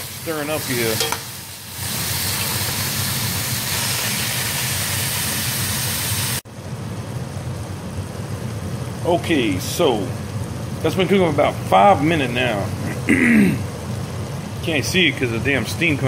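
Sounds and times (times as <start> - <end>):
meat sizzling in hot oil: 0.0 - 6.4
soft sizzle of steaming meat: 0.0 - 16.0.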